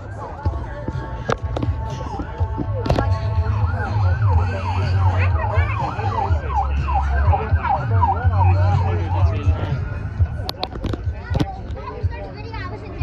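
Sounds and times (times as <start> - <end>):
siren wailing: 3.1 - 9.9.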